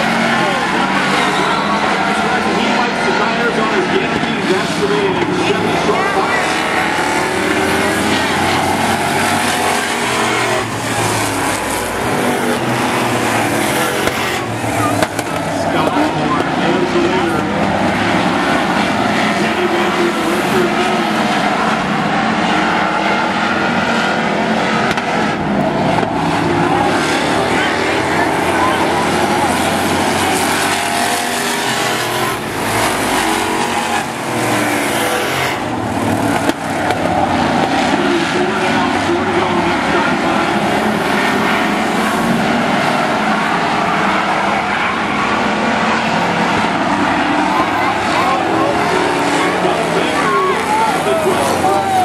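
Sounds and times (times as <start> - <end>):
truck engines racing: 0.0 - 52.0.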